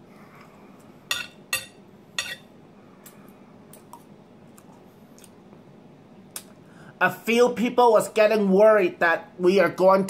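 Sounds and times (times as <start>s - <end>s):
cutlery scraping a ceramic plate: 1.1s - 2.5s.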